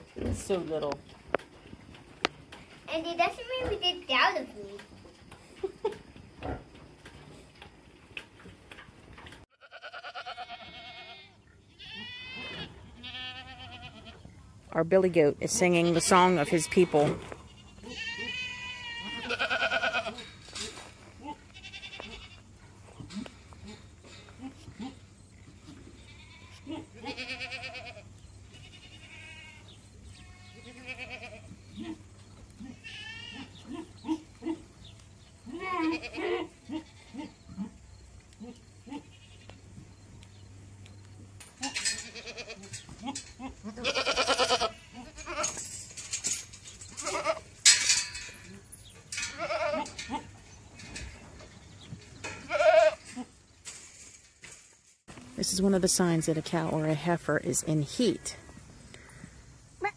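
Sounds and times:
goat bleating: 9.6 - 14.2, 15.8 - 25.1, 25.9 - 34.7, 35.4 - 39.6, 41.6 - 45.6, 46.9 - 47.5, 49.2 - 50.4, 52.3 - 53.4.

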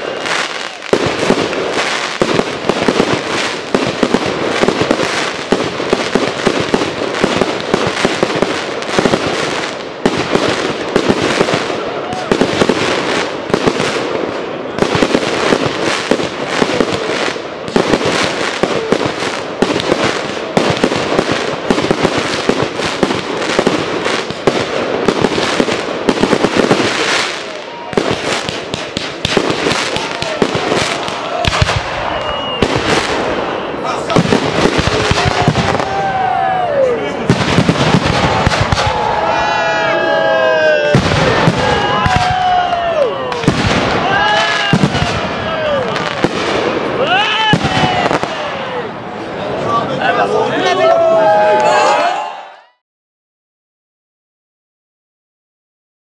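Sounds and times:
fireworks bangs and crackle: 0.0 - 52.0.

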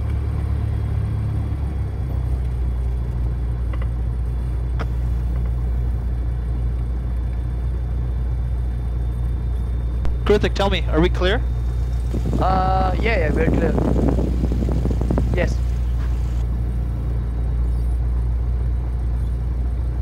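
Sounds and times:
piston aircraft engine idling: 0.0 - 20.0.

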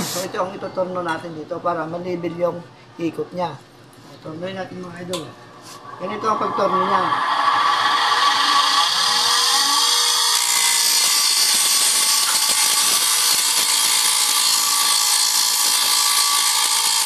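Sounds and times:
grinding wheel hissing: 6.4 - 17.0.

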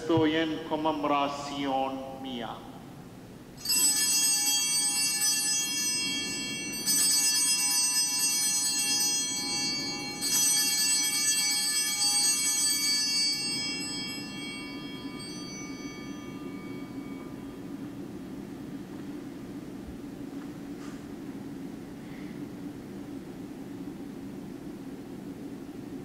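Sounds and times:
altar bells ringing: 3.6 - 19.6.

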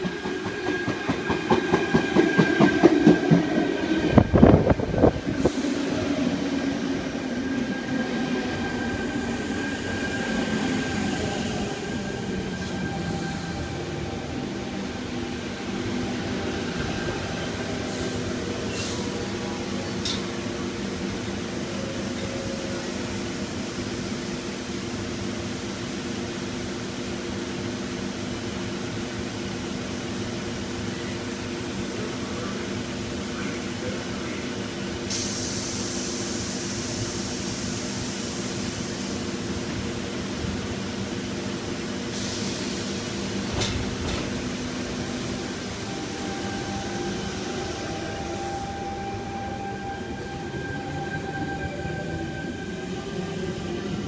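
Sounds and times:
train humming: 0.0 - 54.0.

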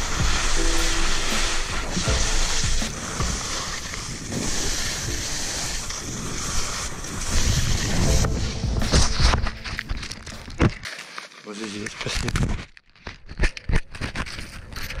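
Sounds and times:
skis scraping over snow: 0.0 - 11.9
wind rumbling on microphone: 2.1 - 10.8.

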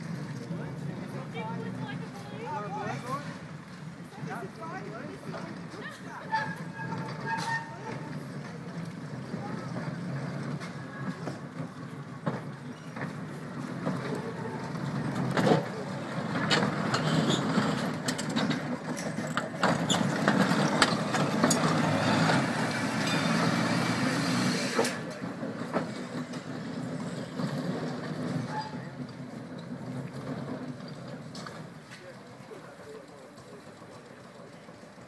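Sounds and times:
tram wheels rumbling on rails: 0.0 - 35.0
clanks and clicks: 5.2 - 22.4.

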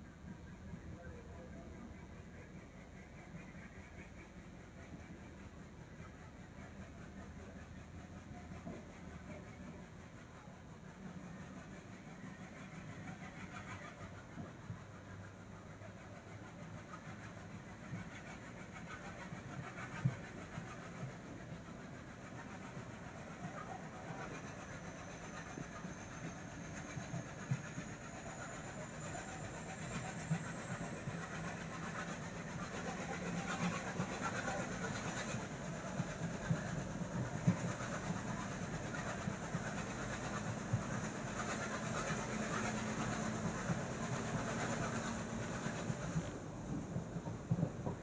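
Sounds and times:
train rumbling on rails: 0.0 - 48.0.

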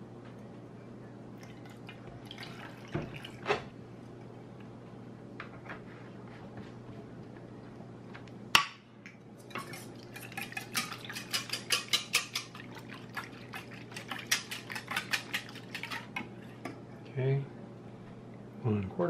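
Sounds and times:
whisk clicking in steel bowl: 10.2 - 12.6, 13.6 - 16.2.

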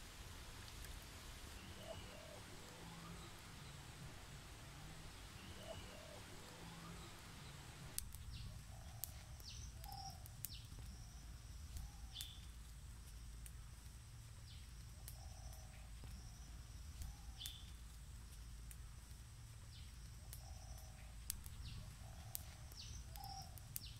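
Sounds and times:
wood fire crackling: 0.0 - 23.9
fire sharp snaps: 0.6 - 1.1, 7.8 - 23.9
birds chirping: 1.5 - 23.9.

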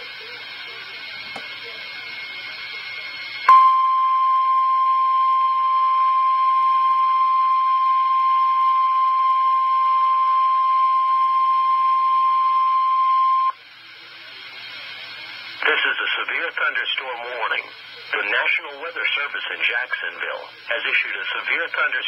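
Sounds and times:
radio hiss: 0.0 - 3.5, 9.4 - 22.0
steady loud warning beep: 2.2 - 13.6.

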